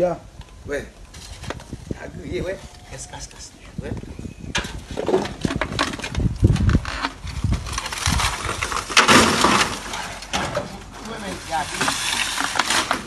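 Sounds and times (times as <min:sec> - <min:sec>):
metal sheets and wood clattering: 0:04.5 - 0:06.7, 0:07.5 - 0:13.0.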